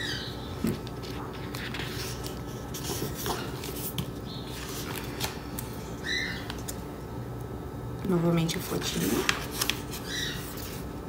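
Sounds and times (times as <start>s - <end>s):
book pages turning: 0.6s - 6.8s, 8.8s - 10.9s.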